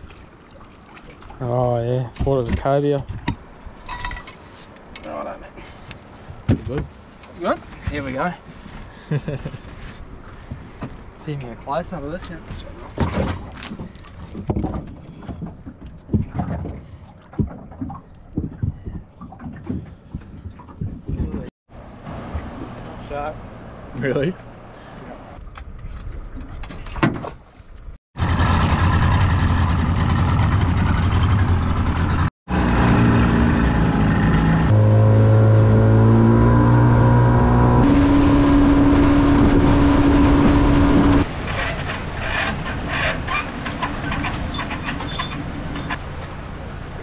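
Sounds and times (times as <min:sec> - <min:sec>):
splashing in shallow water: 0:00.0 - 0:01.5
water rushing along hull: 0:00.0 - 0:02.6, 0:21.8 - 0:26.7, 0:32.6 - 0:47.0
wind: 0:00.0 - 0:47.0
outboard motor running: 0:28.2 - 0:43.1.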